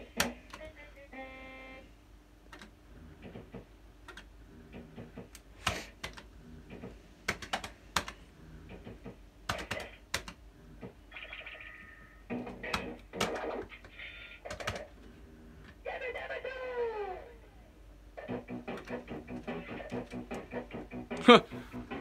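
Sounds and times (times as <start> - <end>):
fruit machine buttons clicking: 2.5 - 2.8.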